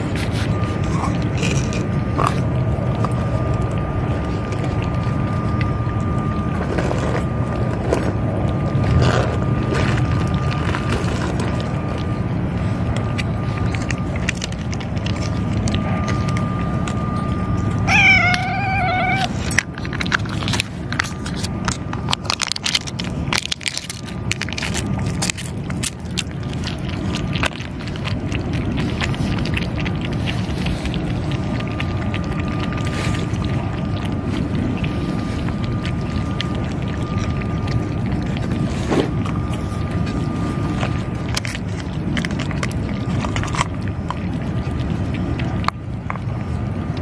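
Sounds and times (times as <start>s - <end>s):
cats chewing and lapping: 0.0s - 47.0s
cat meowing: 17.8s - 19.4s.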